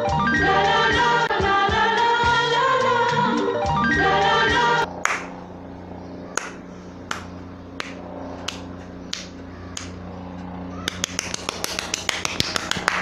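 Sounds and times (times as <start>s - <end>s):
low steady hum: 3.4s - 13.0s
sharp single clicks: 6.3s - 10.0s.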